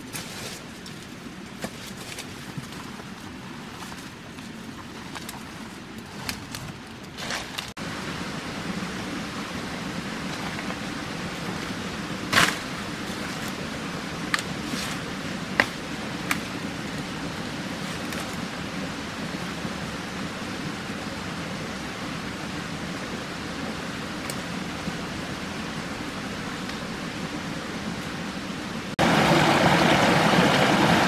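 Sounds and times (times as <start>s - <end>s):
forest ambience hiss: 0.0s - 31.0s
hand tool striking vegetation: 12.3s - 12.7s, 14.3s - 16.5s.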